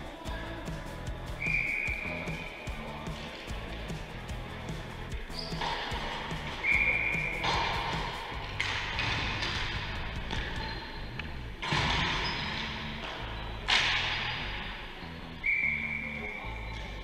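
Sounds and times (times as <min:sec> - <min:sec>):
background music: 0:00.0 - 0:17.0
hockey ball thuds: 0:05.3 - 0:10.8, 0:11.6 - 0:14.6.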